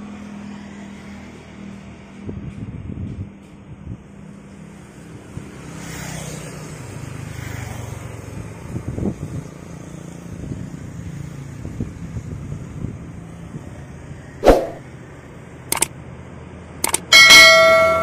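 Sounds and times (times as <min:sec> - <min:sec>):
motorcycles riding past: 0:04.2 - 0:15.1
wind thumps on microphone: 0:14.4 - 0:14.8.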